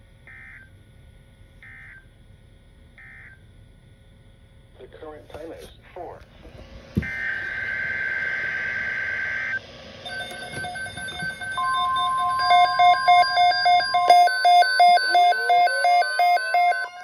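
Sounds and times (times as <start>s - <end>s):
rising tone: 6.6s - 17.0s
buzzy data tone: 7.0s - 17.0s
steady warning tone: 7.0s - 17.0s
weather radios beeping: 7.0s - 17.0s.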